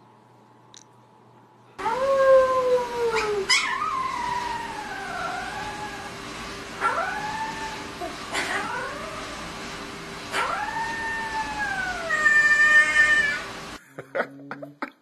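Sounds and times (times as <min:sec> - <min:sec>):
puppy howling: 0:01.8 - 0:06.2, 0:06.8 - 0:09.6, 0:10.3 - 0:13.6.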